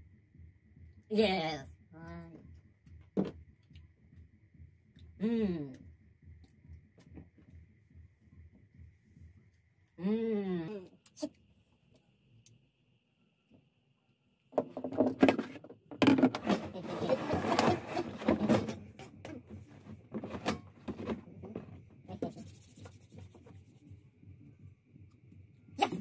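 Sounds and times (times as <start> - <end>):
plastic buckets knocking and scraping: 14.6 - 21.8.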